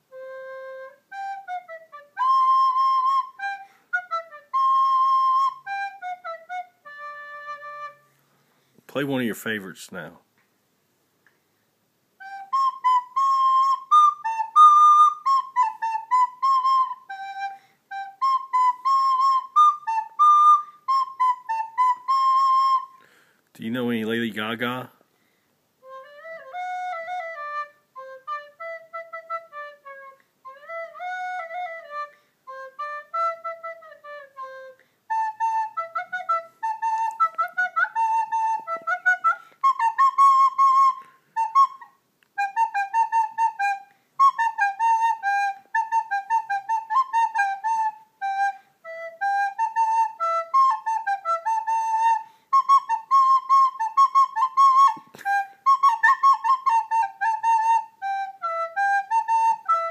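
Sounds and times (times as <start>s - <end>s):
flute playing a tune: 0.0s - 8.2s, 12.2s - 23.2s, 25.8s - 59.9s.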